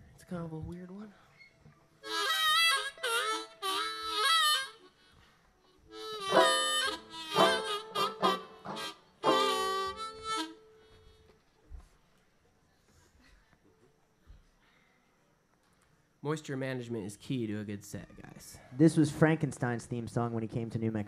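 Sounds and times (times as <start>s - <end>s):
harmonica playing: 2.0s - 11.2s.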